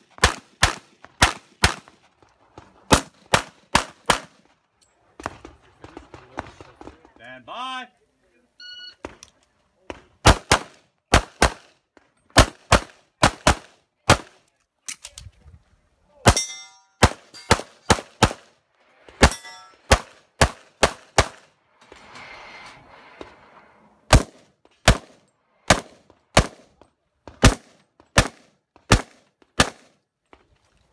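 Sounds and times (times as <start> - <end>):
steel target ringing: 16.3 - 17.6, 19.2 - 19.8
rapid pistol fire: 24.1 - 26.7, 27.4 - 29.9.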